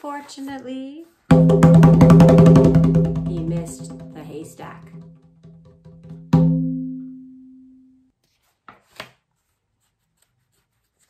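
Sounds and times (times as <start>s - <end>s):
drum struck ringing low: 1.3s - 7.5s.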